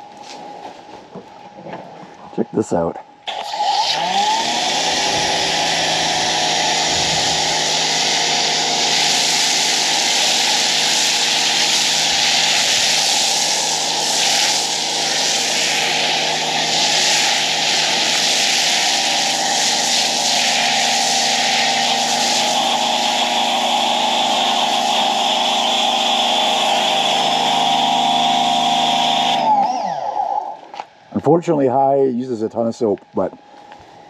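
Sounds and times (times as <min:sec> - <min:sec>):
pressure washer motor and pump hum: 0:03.2 - 0:30.9
loud hiss of spray: 0:03.5 - 0:29.4.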